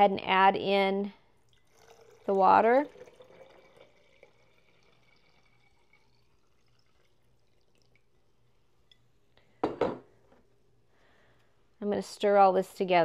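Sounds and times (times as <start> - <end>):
water trickling into glass jar: 1.4 - 9.2
object knocking on countertop: 9.6 - 10.1.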